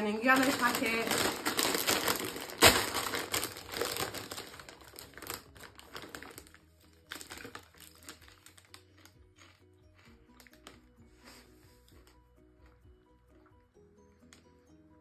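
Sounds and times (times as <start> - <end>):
loud plastic crackle: 0.0 - 9.7
crisp packet crinkling: 0.0 - 10.9.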